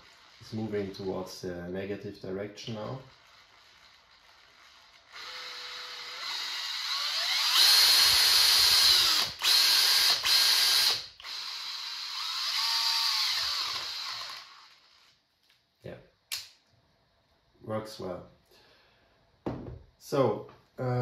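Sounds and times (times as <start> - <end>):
cordless drill motor whining: 0.0 - 1.3, 2.6 - 15.2.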